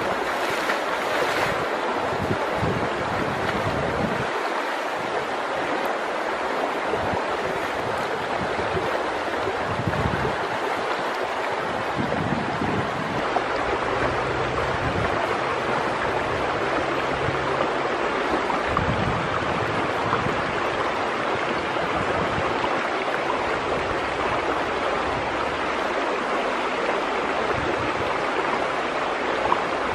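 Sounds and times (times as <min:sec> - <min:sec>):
stream rushing over stones: 0:00.0 - 0:29.9.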